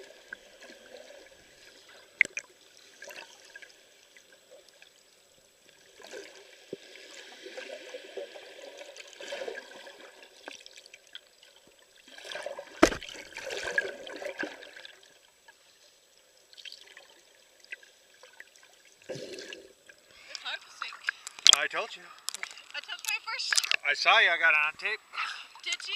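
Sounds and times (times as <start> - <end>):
water swirling underwater: 0.0 - 4.9, 5.7 - 15.4
sharp knock: 12.8 - 13.1.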